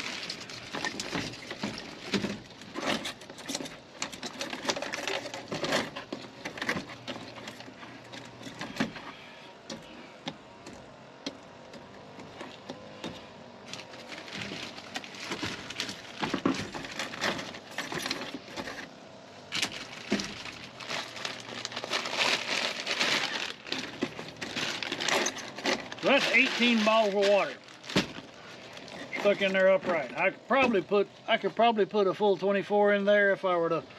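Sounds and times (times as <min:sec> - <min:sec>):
plastic wrap crinkling: 0:00.0 - 0:02.6, 0:13.6 - 0:18.5, 0:19.5 - 0:30.2.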